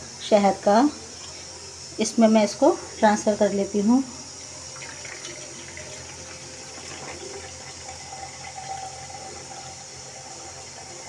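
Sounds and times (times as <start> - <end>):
water pouring into plastic jar: 4.7 - 11.0.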